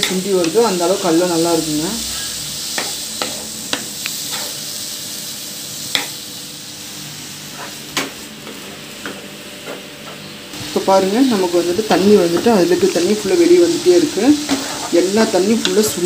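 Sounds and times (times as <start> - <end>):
vegetables sizzling in a pan: 0.0 - 16.0
wooden spatula scraping a pan: 7.5 - 7.8, 14.4 - 15.9.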